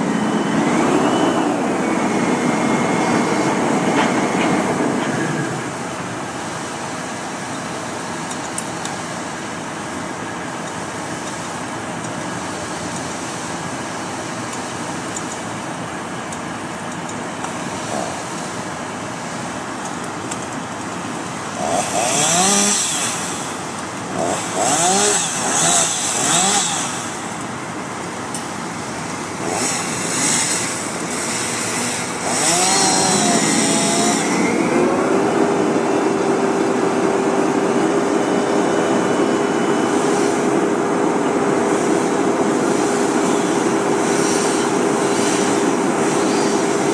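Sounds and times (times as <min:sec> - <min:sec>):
heavy machinery running: 0:00.0 - 0:46.9
wood chipper whine and hum: 0:00.0 - 0:46.9
chainsaw revving and cutting: 0:17.8 - 0:18.3, 0:21.5 - 0:27.4, 0:29.3 - 0:34.9.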